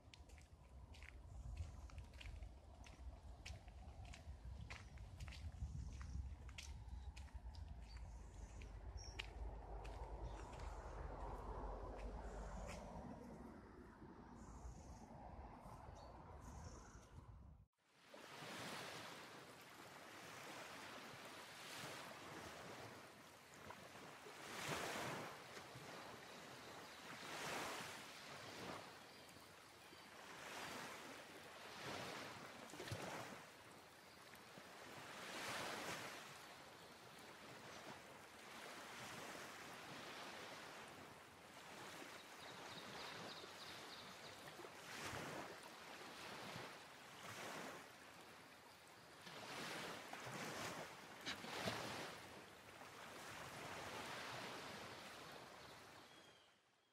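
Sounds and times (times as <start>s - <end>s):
waves washing in: 5.9s - 16.6s, 17.9s - 56.0s.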